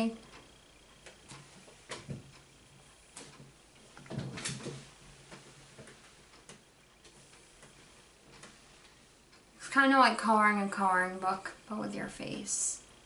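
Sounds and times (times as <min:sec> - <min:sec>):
handling knocks and clicks: 0:03.2 - 0:08.6.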